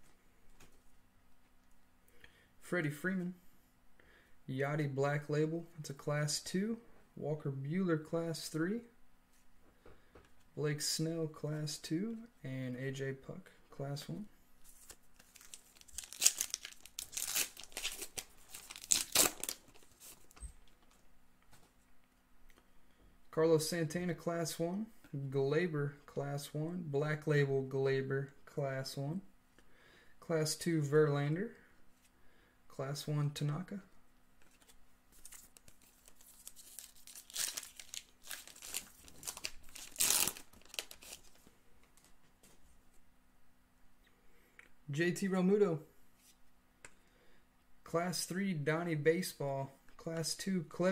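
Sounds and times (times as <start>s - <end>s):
foil wrapper crinkling and tearing: 14.8s - 20.3s, 34.6s - 41.4s.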